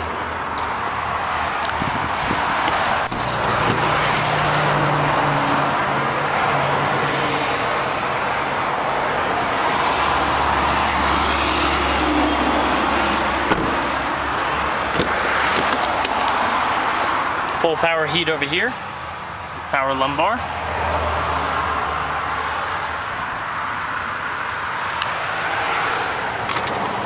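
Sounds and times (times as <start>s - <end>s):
highway traffic noise: 0.0s - 27.0s.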